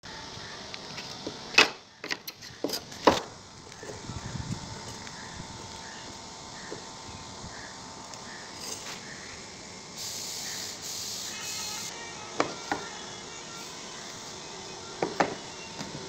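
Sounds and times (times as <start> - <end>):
hiss: 8.2 - 16.0.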